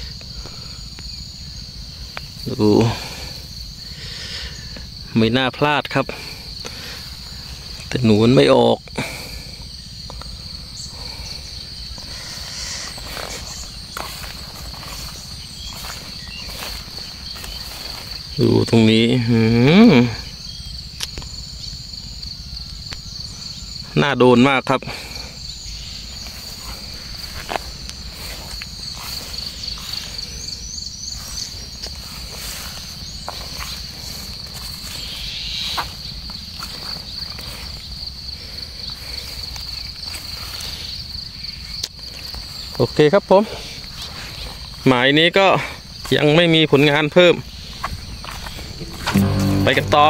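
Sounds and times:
high insect trill: 0:00.0 - 0:50.0
footsteps through dry grass: 0:12.9 - 0:18.5, 0:26.0 - 0:37.9, 0:45.9 - 0:50.0.

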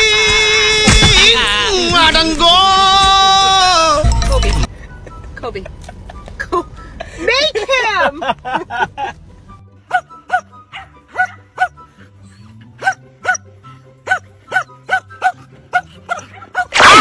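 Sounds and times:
background music with bass line: 0:00.0 - 0:07.0
dog barking: 0:09.9 - 0:11.8, 0:12.8 - 0:13.4, 0:14.0 - 0:17.0.

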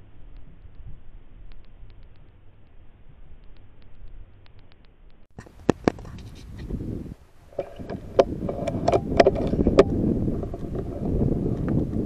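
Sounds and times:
scattered clicks: 0:00.3 - 0:06.3.

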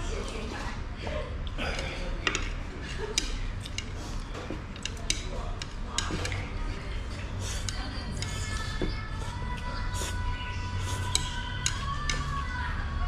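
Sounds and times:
murmur of room noise: 0:00.0 - 0:13.0
chopsticks clicking on a plate: 0:01.8 - 0:09.0, 0:10.8 - 0:12.4.

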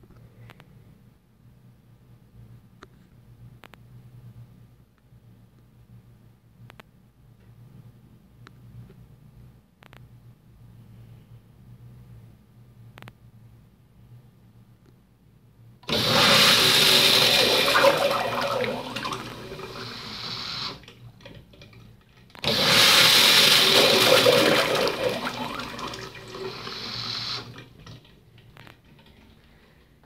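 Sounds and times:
urinal flushing: 0:15.8 - 0:30.0.

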